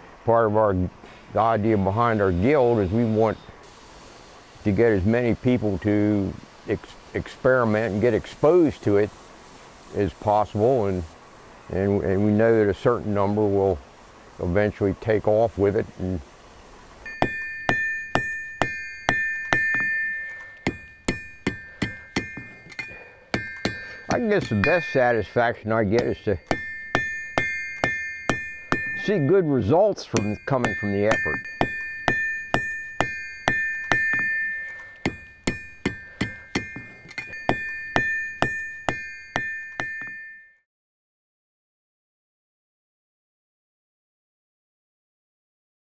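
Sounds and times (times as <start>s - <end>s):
hammer striking iron on anvil: 17.1s - 40.6s.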